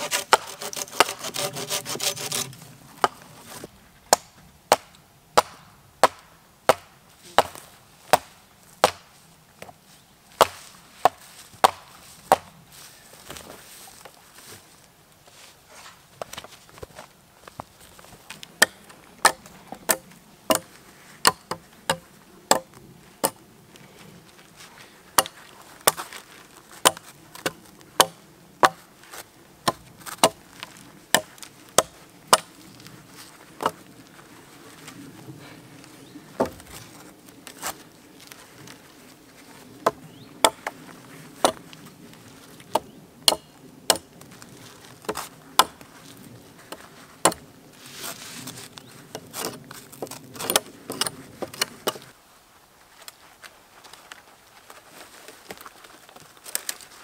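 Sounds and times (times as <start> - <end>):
hatchet striking wood: 0.0 - 3.2, 4.1 - 9.1, 10.4 - 12.5, 18.6 - 23.4, 25.2 - 26.0, 26.8 - 28.8, 29.6 - 30.4, 31.1 - 32.5, 42.7 - 44.1, 45.1 - 45.8.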